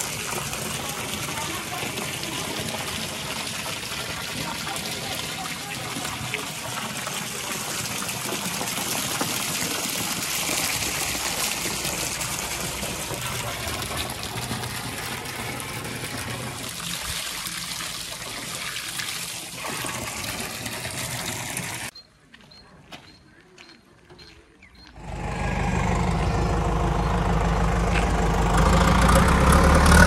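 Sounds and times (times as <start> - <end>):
water pouring into a tank: 0.0 - 21.9.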